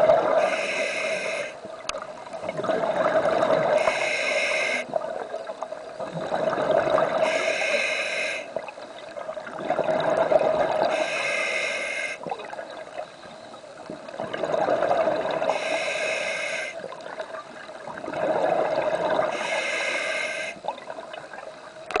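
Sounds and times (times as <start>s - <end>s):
regulator air hiss: 0.4s - 1.6s, 3.8s - 4.9s, 7.2s - 8.5s, 10.9s - 12.3s, 15.5s - 16.8s, 19.3s - 20.6s
exhaled bubbles rushing: 2.1s - 3.8s, 4.9s - 7.2s, 8.6s - 10.9s, 13.9s - 15.5s, 16.8s - 19.4s.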